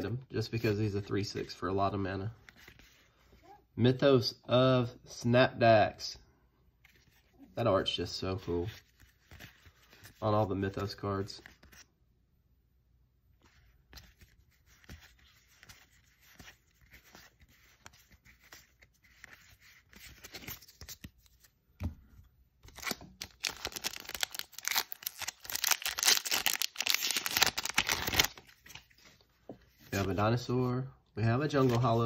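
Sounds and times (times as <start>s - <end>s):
playing cards rustling: 6.8s - 11.9s, 13.4s - 21.6s, 22.6s - 30.5s, 31.3s - 32.0s
foil wrapper crinkling: 22.7s - 28.4s.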